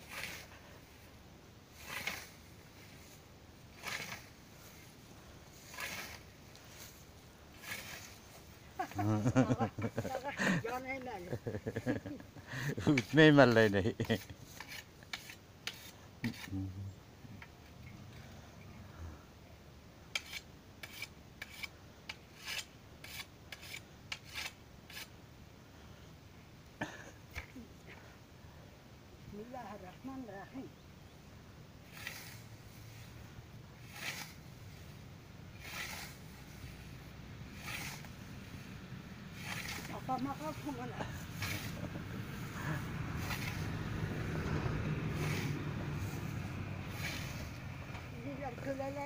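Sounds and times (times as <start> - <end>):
scythe swishing through grass: 0.0 - 12.1, 12.8 - 16.5, 22.4 - 25.1, 31.8 - 49.0.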